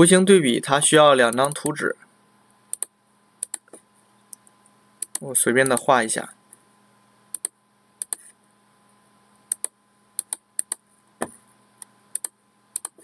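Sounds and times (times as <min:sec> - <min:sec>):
faint steady hum: 0:00.0 - 0:13.0
mouse and keyboard clicks: 0:02.7 - 0:03.8, 0:05.0 - 0:05.9, 0:07.3 - 0:08.3, 0:09.5 - 0:10.8, 0:12.2 - 0:13.0.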